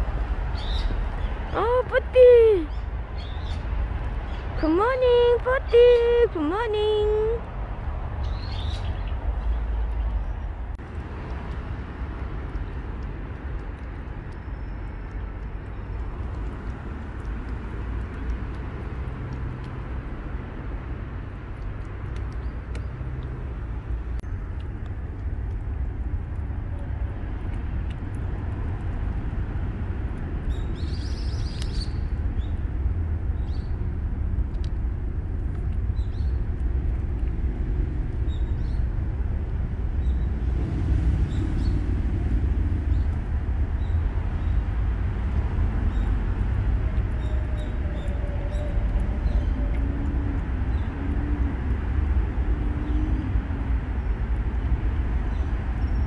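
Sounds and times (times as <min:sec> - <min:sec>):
low outdoor rumble: 0:00.0 - 0:56.0
kitten lapping and chewing: 0:09.9 - 0:41.2, 0:42.3 - 0:52.8.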